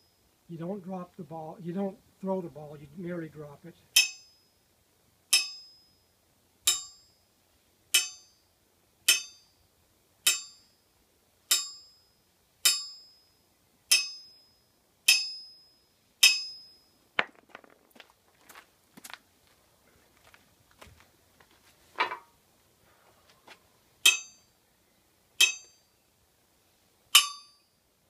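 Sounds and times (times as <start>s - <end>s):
steel ball ringing on anvil: 4.0s - 4.5s, 5.3s - 6.0s, 6.7s - 7.2s, 7.9s - 8.5s, 9.1s - 9.6s, 10.2s - 10.8s, 11.5s - 16.9s, 24.0s - 24.5s, 25.4s - 26.0s, 27.1s - 27.8s.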